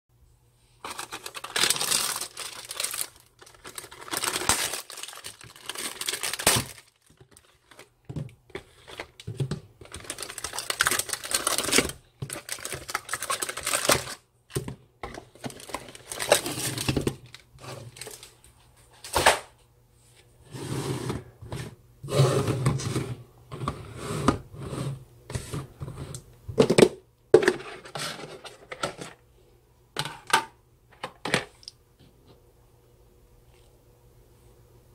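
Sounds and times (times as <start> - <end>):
cellophane crinkling and tearing: 0.8 - 18.4.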